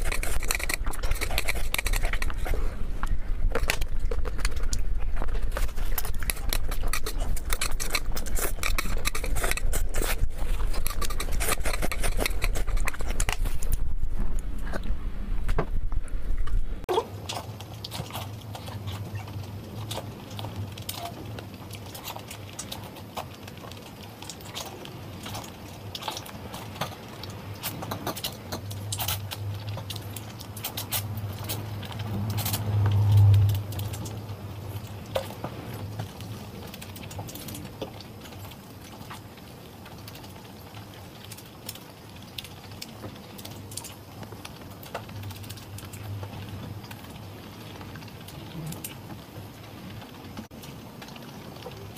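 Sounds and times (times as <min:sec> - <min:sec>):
chewing with wet mouth clicks: 0:00.0 - 0:02.6, 0:03.5 - 0:13.8
noodles slurped: 0:00.0 - 0:02.8, 0:03.7 - 0:13.7.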